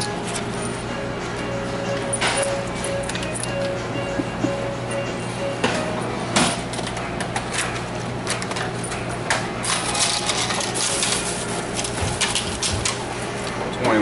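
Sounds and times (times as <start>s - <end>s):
coins clinking: 1.9s - 3.8s, 9.6s - 12.5s.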